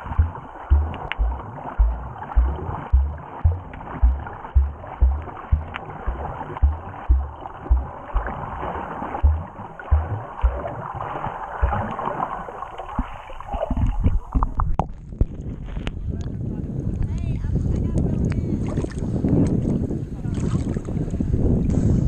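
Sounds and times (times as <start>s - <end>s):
low underwater thumps: 0.0s - 15.4s
muffled underwater water wash: 0.0s - 15.6s
sharp clicks and splashes: 0.0s - 16.0s.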